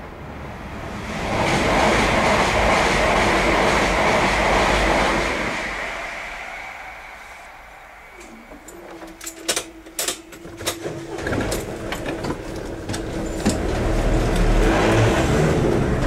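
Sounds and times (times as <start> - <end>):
car engine pulling away: 13.0 - 16.0.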